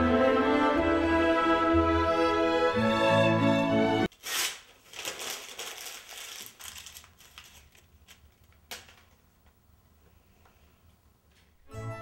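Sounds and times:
paper rustling: 4.1s - 9.2s.

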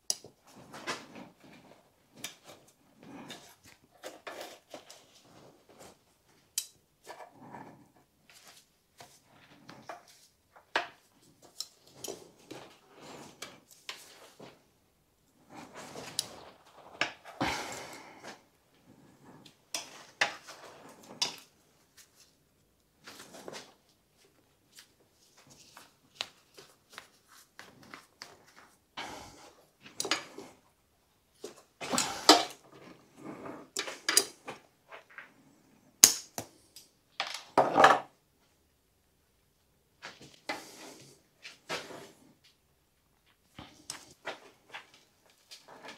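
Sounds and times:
clicks and knocks of tools: 9.9s - 12.2s.

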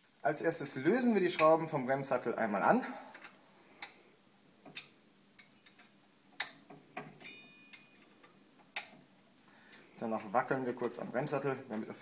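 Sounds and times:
high metallic ring: 7.2s - 8.2s.

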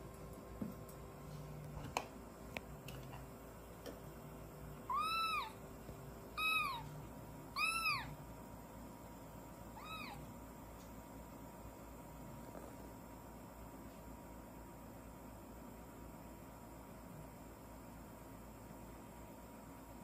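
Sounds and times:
kitten meowing: 4.9s - 5.6s, 6.4s - 6.9s, 7.6s - 8.2s, 9.8s - 10.3s.

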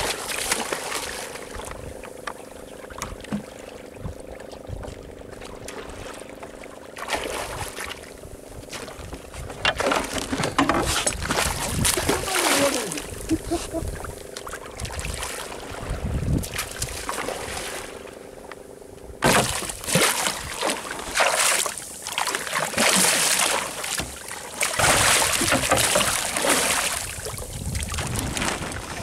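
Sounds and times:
water splashing and sloshing: 0.0s - 29.0s
fish thrashing at water surface: 9.8s - 14.1s, 19.2s - 27.1s.

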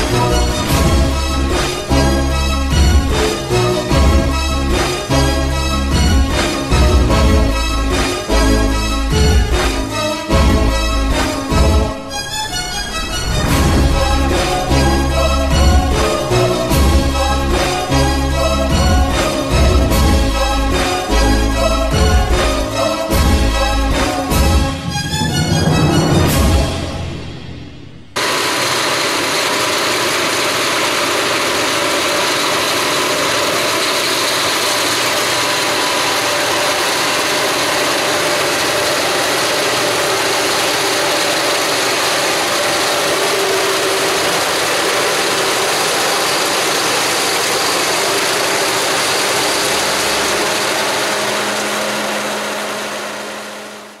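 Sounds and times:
forage harvester engine and chopper: 0.0s - 26.8s, 28.2s - 54.0s.

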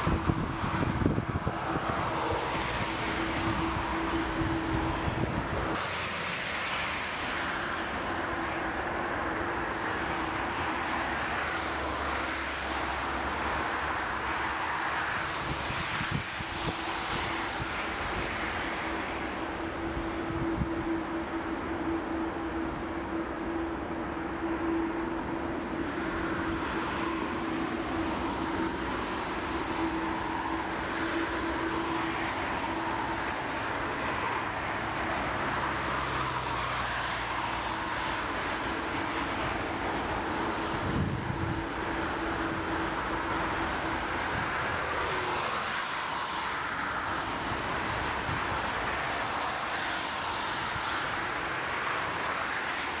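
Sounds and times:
jet engines roaring: 0.0s - 53.0s.

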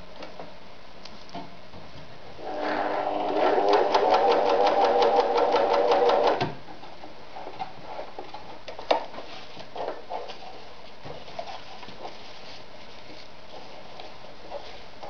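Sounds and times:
sewing machine stitching: 2.5s - 6.4s.

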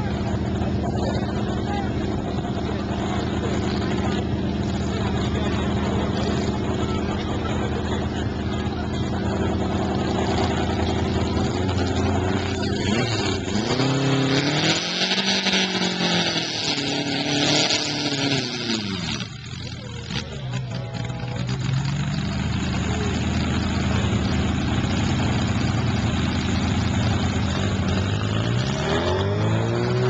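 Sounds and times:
tractor engine revving: 0.0s - 30.0s.

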